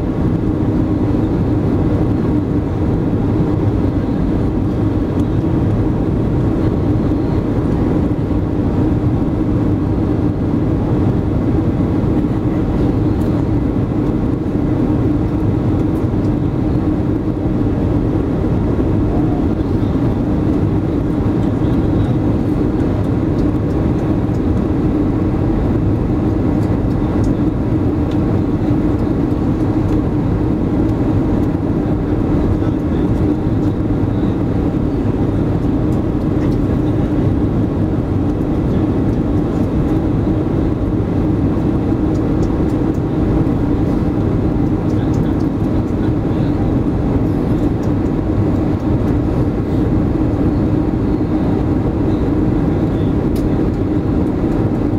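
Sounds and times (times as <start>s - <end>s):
airplane cabin engine rumble: 0.0s - 54.9s.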